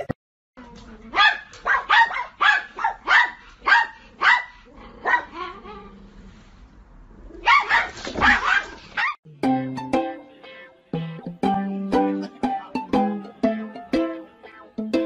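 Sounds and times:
dog barking: 1.2s - 5.6s, 7.4s - 9.2s.

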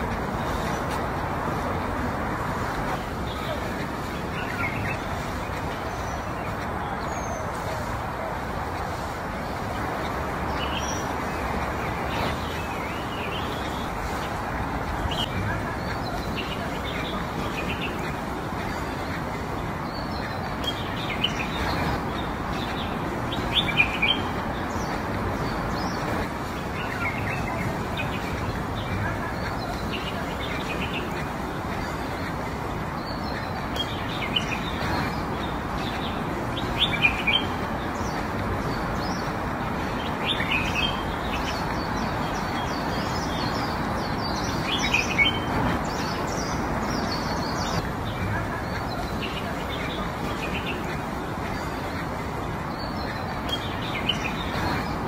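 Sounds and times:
outdoor background rush: 0.0s - 55.0s
small birds chirping: 0.0s - 55.0s.

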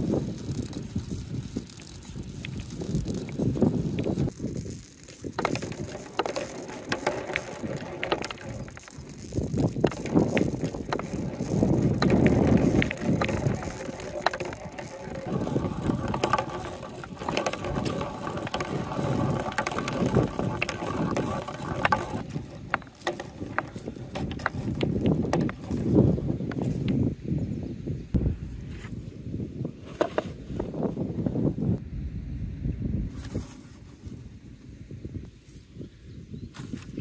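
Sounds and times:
balls rattling down plastic hose: 0.0s - 27.0s.

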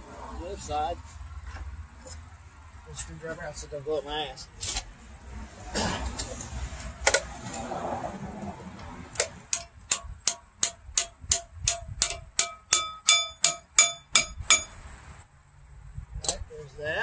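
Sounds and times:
tool striking metal: 9.2s - 14.8s.

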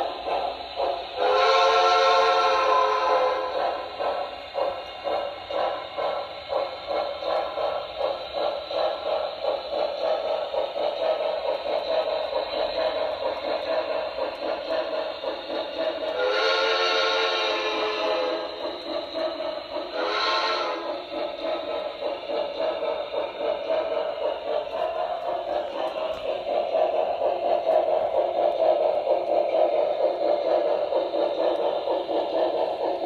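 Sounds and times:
model train steam chuffs: 0.0s - 33.0s
steam whistle: 1.2s - 3.6s, 16.1s - 18.5s, 19.9s - 20.9s.

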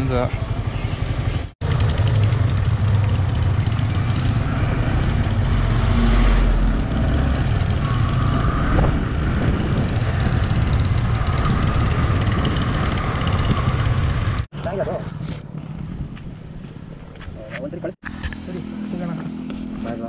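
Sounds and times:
motorcycle engine running: 0.2s - 14.5s
wind noise on microphone: 4.3s - 17.5s.

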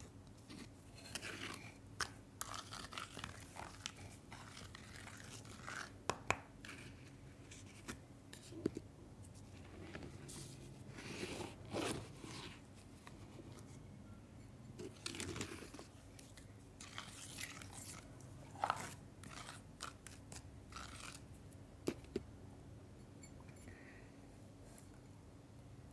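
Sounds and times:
wet clay squelching: 15.1s - 21.3s.

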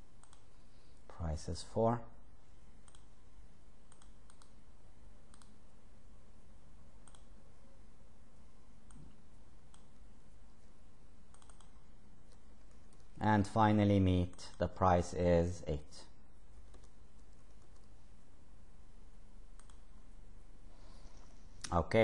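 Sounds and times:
background hiss: 0.0s - 22.0s
keyboard and mouse clicks: 0.2s - 0.5s, 2.8s - 3.1s, 3.9s - 4.6s, 5.3s - 5.6s, 7.0s - 7.3s, 11.3s - 13.2s, 16.6s - 17.9s, 19.6s - 19.8s.

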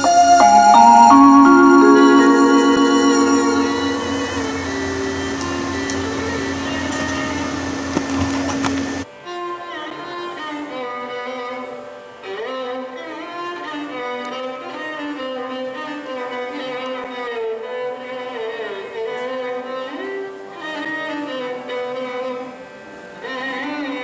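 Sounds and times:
slow melody with sliding notes: 0.0s - 7.6s.

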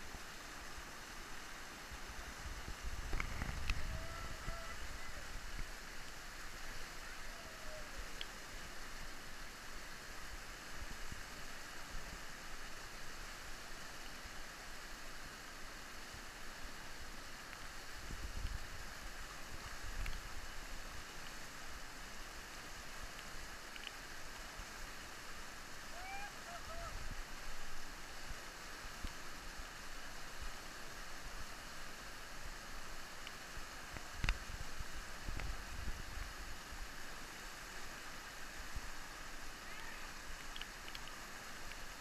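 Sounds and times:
whitewater rushing: 0.0s - 42.0s.

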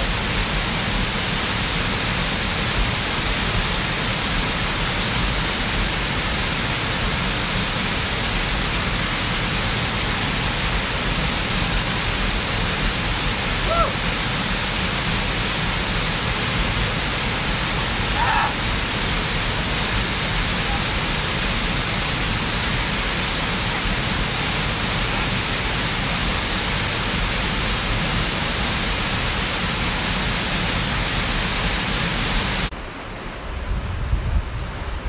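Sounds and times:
waterfall rushing: 0.0s - 33.6s.

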